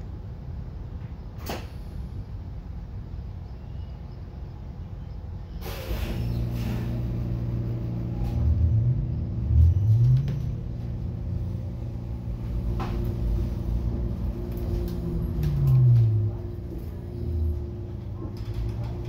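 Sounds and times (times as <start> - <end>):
electric bus motor whine: 0.0 - 19.0
air hiss: 5.5 - 7.2.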